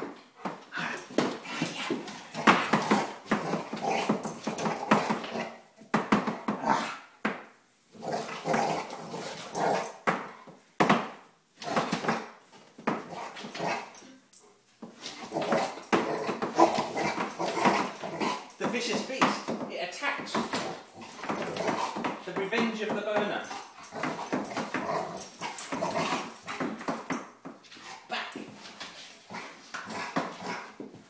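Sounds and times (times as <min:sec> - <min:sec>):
dog growling and barking: 0:00.8 - 0:05.7, 0:06.6 - 0:07.1, 0:07.9 - 0:10.0, 0:15.1 - 0:18.6, 0:20.5 - 0:22.0, 0:23.5 - 0:26.7, 0:29.3 - 0:30.8.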